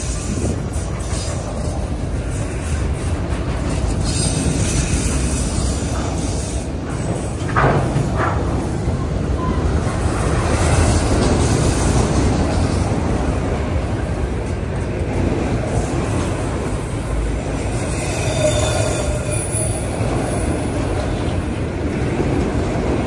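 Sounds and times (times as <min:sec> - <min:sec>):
freight train wheels rumbling: 0:00.0 - 0:23.0
faint wheel squeal: 0:17.5 - 0:19.9.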